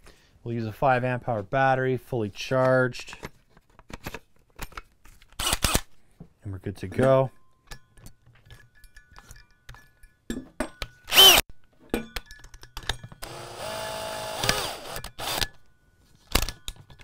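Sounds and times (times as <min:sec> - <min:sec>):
cordless drill running: 0:11.1 - 0:11.4, 0:13.2 - 0:15.5.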